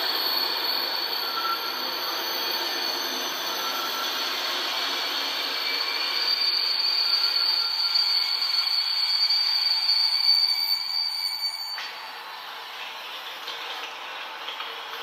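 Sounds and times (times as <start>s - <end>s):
wheels hissing on track: 0.0s - 15.0s.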